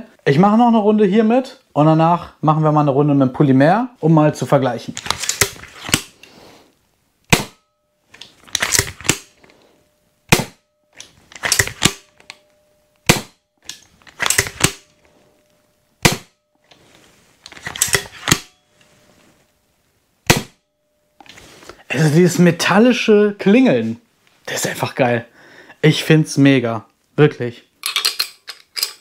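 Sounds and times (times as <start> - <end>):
pump-action cocking clatter: 5.0 - 6.0, 8.5 - 9.3, 11.0 - 12.0, 13.7 - 14.8, 17.6 - 18.4
pistol crossbow shots ringing: 7.3 - 7.6, 10.3 - 10.7, 11.4 - 12.2, 13.0 - 13.4, 14.2 - 15.0, 16.0 - 16.4, 20.3 - 20.6.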